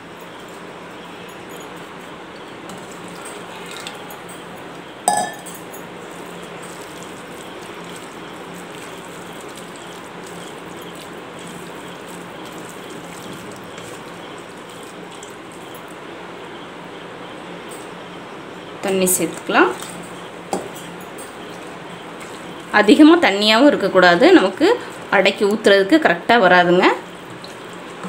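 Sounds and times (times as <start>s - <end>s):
metallic clink: 5.1s - 5.9s
batter stirred with spatula: 6.0s - 15.9s, 19.1s - 23.3s.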